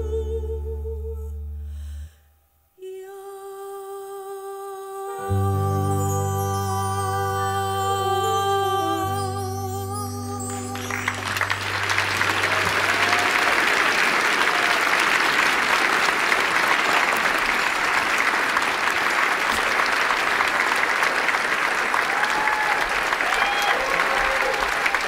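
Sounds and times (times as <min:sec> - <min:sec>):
big band held chord: 0:05.2 - 0:13.6
audience applauding: 0:10.5 - 0:25.0
crowd calls: 0:10.8 - 0:18.6.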